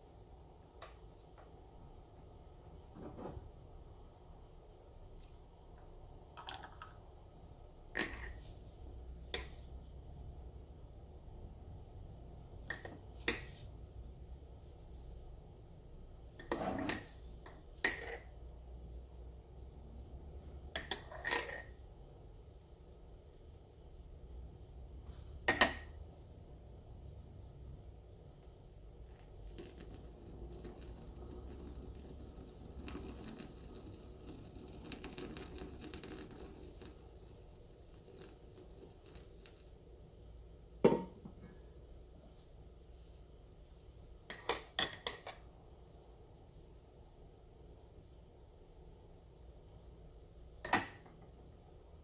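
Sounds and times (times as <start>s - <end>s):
milk frother bubbling: 29.0s - 40.0s.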